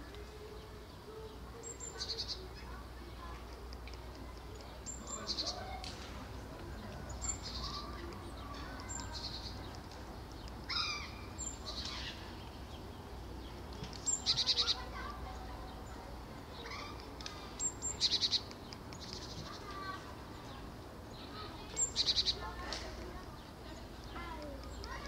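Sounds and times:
songbirds trilling and chirping: 0:00.0 - 0:25.0.

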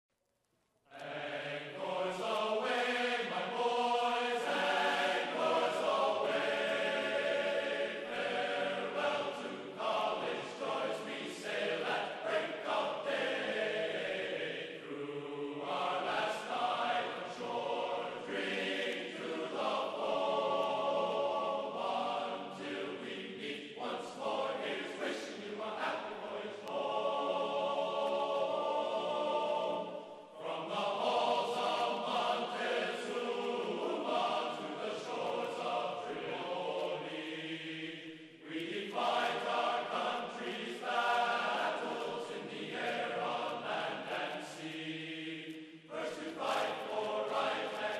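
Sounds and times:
choir chanting long notes: 0:00.9 - 0:47.9.

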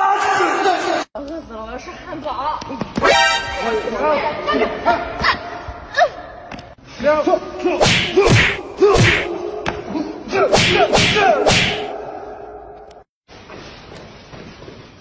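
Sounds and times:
whip-like strike effects: 0:07.8 - 0:09.3, 0:10.5 - 0:11.9.

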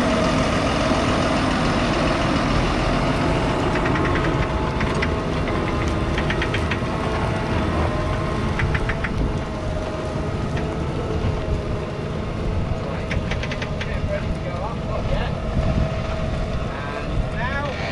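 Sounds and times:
diesel engine running: 0:00.0 - 0:17.9
rapid sharp clicking: 0:03.4 - 0:07.1, 0:08.1 - 0:09.5, 0:12.9 - 0:14.6.

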